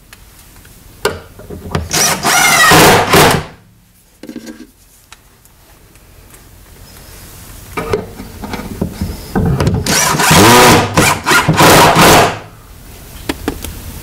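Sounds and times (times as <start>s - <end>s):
cordless drill driving screws: 1.9s - 3.4s, 9.8s - 12.4s.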